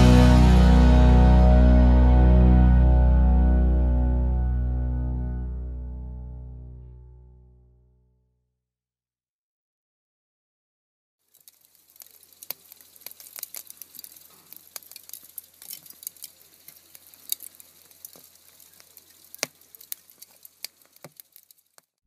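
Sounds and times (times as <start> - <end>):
low steady hum: 0.0 - 7.8
sharp crackling pops and snaps: 11.2 - 22.0.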